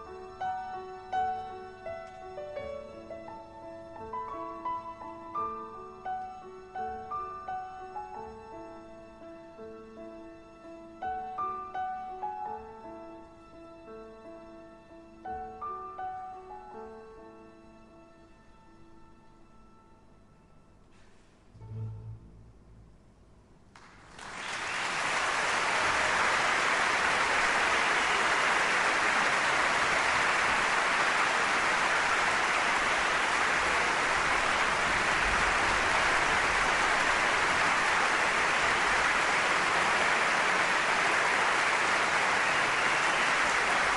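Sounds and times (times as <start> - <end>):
audience applauding: 23.8 - 43.9.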